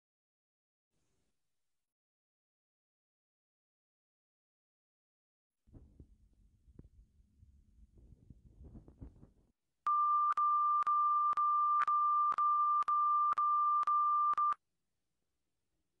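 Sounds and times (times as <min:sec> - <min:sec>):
faint low rumble: 0:05.7 - 0:09.5.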